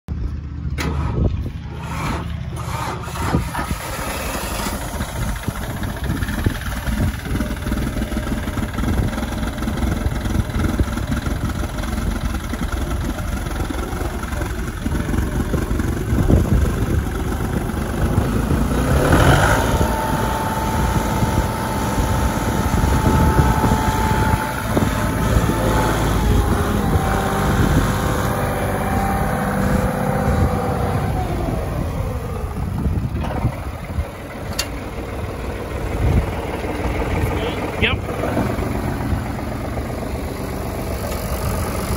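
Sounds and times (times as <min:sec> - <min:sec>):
tractor diesel engine running: 0:00.1 - 0:41.9
steady whine: 0:03.5 - 0:41.9.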